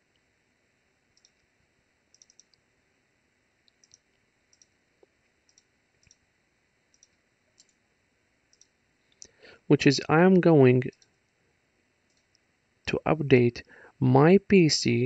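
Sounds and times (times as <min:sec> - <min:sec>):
computer mouse clicks: 0:01.2 - 0:01.5, 0:02.1 - 0:02.6, 0:03.7 - 0:04.8, 0:05.4 - 0:06.2, 0:06.9 - 0:07.8, 0:08.5 - 0:09.4, 0:12.1 - 0:12.4.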